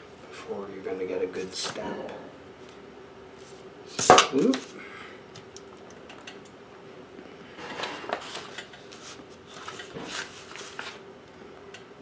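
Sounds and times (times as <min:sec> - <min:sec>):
paper rustling: 0:07.8 - 0:11.0.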